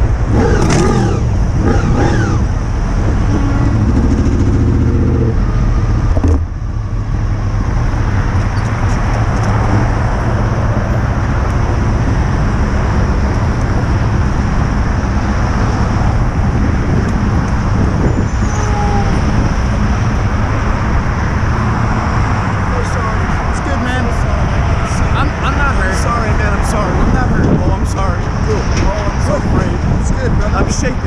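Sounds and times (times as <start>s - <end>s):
motorcycle engine: 0.0s - 22.1s
wind and road noise: 0.0s - 31.0s.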